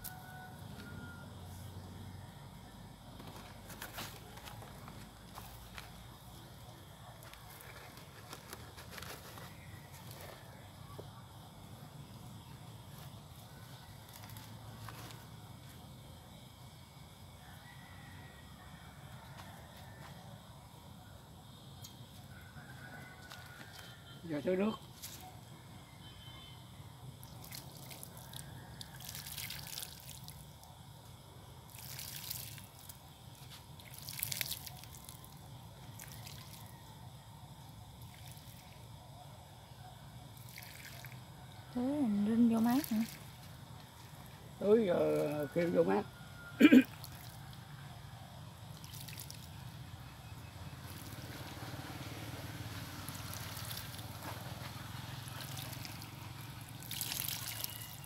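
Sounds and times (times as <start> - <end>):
water trickling from watering can: 27.2 - 30.5, 31.7 - 36.7, 40.4 - 41.2, 42.4 - 43.5, 46.8 - 47.4, 48.7 - 49.6, 50.8 - 51.4, 52.8 - 54.5, 55.2 - 58.0
water splashing spurts: 27.2 - 30.6, 31.7 - 36.7, 40.4 - 41.2, 42.5 - 43.5, 46.6 - 47.4, 48.7 - 49.7, 50.8 - 58.0.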